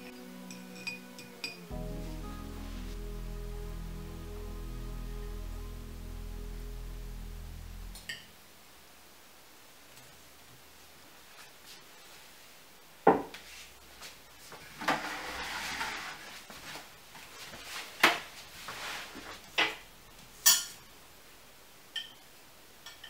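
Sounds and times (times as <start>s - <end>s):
dish scraping: 14.7s - 16.3s.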